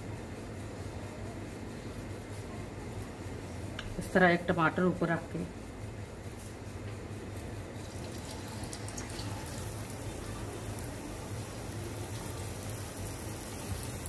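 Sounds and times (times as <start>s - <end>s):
food sizzling in hot oil: 7.8s - 14.0s.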